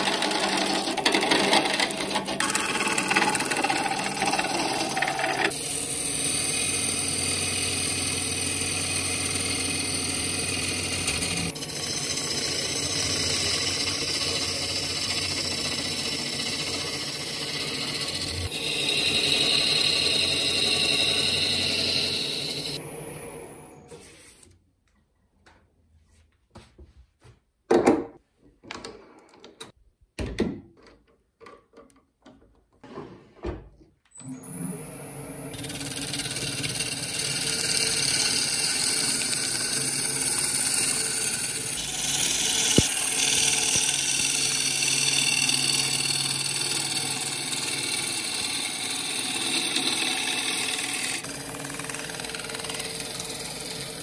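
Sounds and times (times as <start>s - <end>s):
gouge shaving spinning wood: 0.0s - 22.8s, 35.6s - 54.0s
lathe motor hum: 0.0s - 23.8s, 34.3s - 54.0s.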